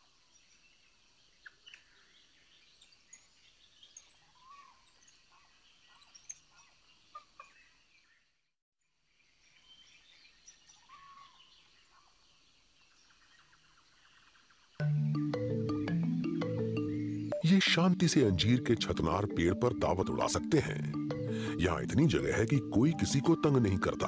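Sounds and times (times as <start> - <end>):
rainforest ambience: 0.0 - 8.2, 9.2 - 19.6.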